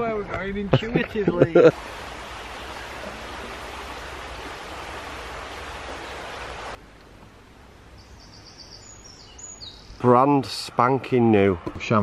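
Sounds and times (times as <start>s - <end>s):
river water rushing: 1.6s - 6.8s
high bird chirps: 8.0s - 10.1s.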